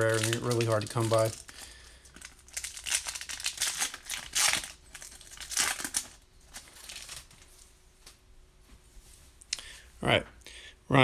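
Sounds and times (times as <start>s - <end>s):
foil wrapper tearing: 0.0s - 7.5s
foil wrapper crinkling: 0.0s - 7.7s.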